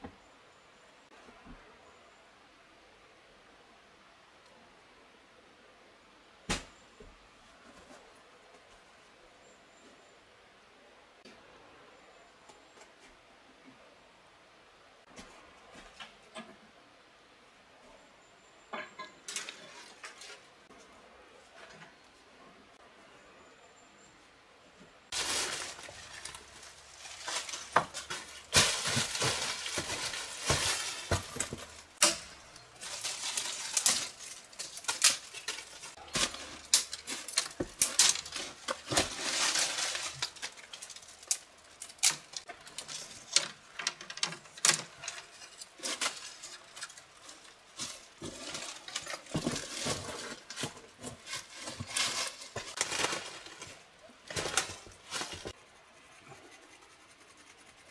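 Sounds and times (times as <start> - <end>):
dry leaves crunching: 25.1 - 41.4, 45.7 - 55.6
branches rustling and snapping: 25.1 - 55.6
footsteps on rock: 27.6 - 31.8.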